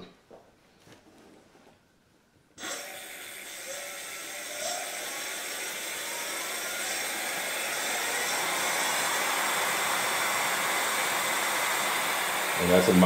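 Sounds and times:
electric motor whine: 2.6 - 13.0
spinning tyre rush: 4.1 - 13.0.

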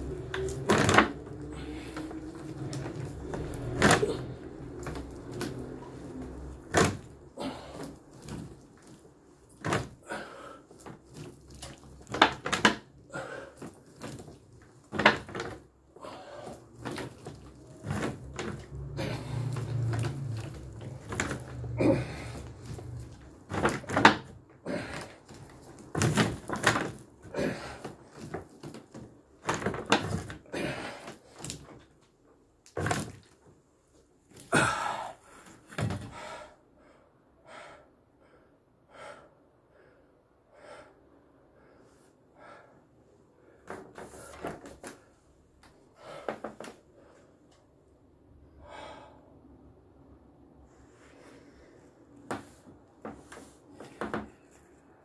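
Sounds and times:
plastic bottles knocking: 0.0 - 10.0, 10.7 - 15.7, 16.4 - 31.8.

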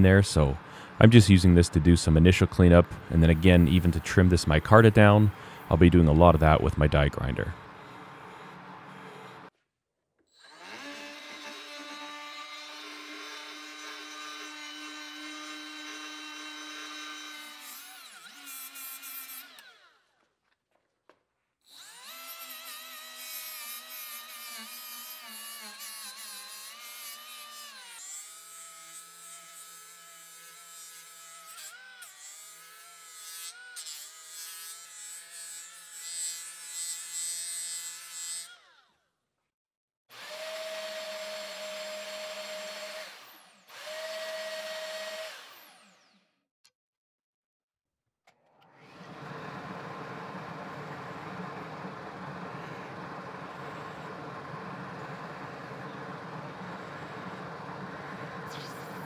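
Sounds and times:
die grinder whining: 7.5 - 9.5, 10.3 - 20.1, 40.1 - 46.3, 48.5 - 59.0
bandsaw whine: 10.3 - 16.9, 48.6 - 59.0.

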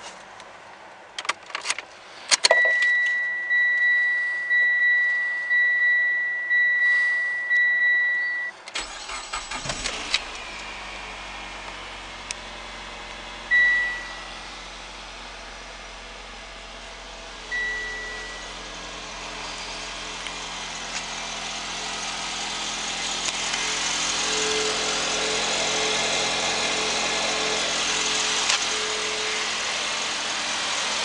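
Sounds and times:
dashboard warning chime beeping: 2.5 - 9.2, 13.5 - 14.3, 17.5 - 18.6
car engine cranking and starting: 8.6 - 31.0
car engine idling: 8.8 - 31.0.

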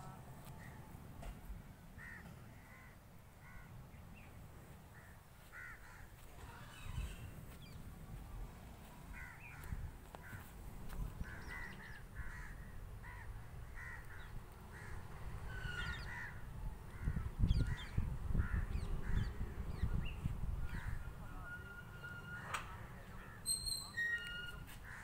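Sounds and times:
crows cawing: 2.0 - 3.7, 5.0 - 6.8, 9.1 - 10.5, 11.2 - 19.4.

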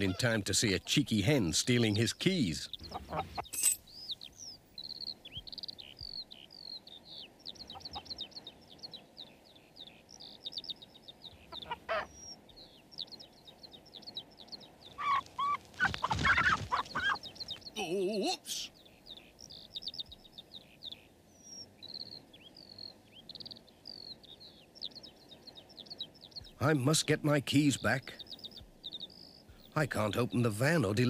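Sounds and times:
hen clucking: 0.0 - 1.0, 1.8 - 3.5, 7.5 - 8.4, 11.3 - 12.4, 14.9 - 21.1
bird chirps and twitters: 0.0 - 31.0.

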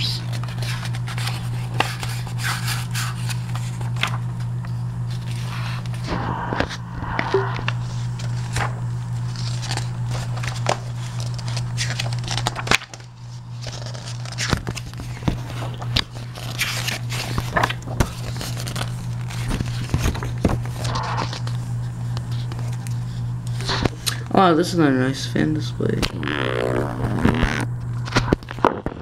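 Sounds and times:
paper pages rustling: 0.0 - 4.5, 5.1 - 6.0, 7.6 - 24.1
steady low hum: 0.0 - 29.0.

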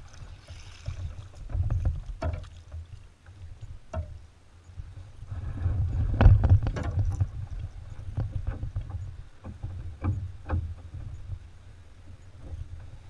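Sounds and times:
paddle splashing in water: 0.0 - 4.1
steady low rumble: 0.0 - 13.0.

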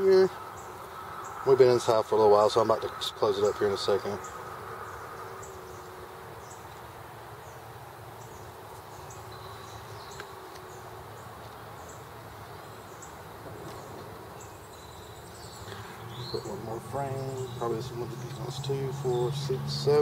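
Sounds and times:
honeybees humming: 0.0 - 20.0.

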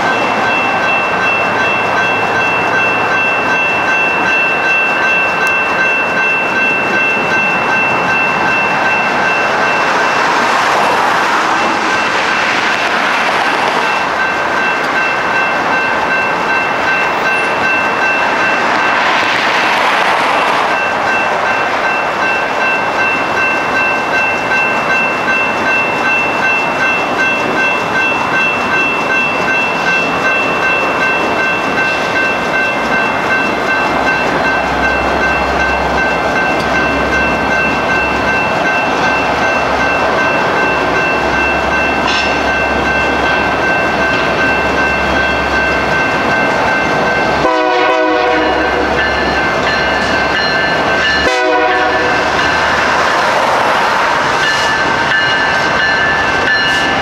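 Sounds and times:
electronic crossing bell ringing: 0.0 - 57.0
freight train noise: 0.0 - 57.0
locomotive horn blasts: 47.4 - 49.0, 51.2 - 52.3.

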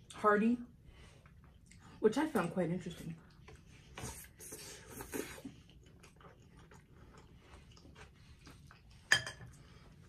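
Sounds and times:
soft chewing: 0.0 - 10.0
pasta slurping: 3.3 - 10.0.

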